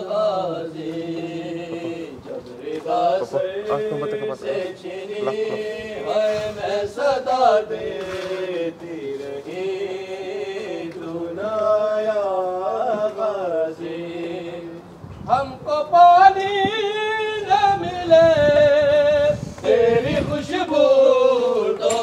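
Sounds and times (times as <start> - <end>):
solo voice singing lament: 0.0 - 7.9.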